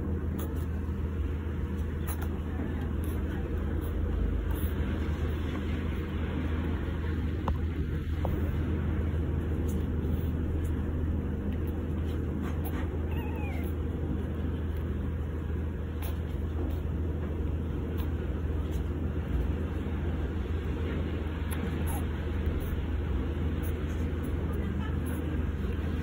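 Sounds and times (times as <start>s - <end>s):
steady low hum: 0.0s - 26.0s
puppy squeaking: 12.8s - 13.8s.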